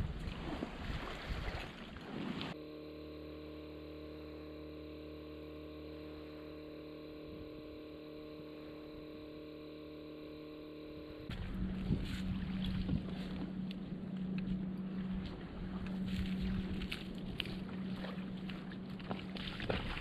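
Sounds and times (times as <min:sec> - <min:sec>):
wind buffeting microphone: 0:00.0 - 0:01.7, 0:11.3 - 0:14.0
quiet electrical hum: 0:00.0 - 0:20.0.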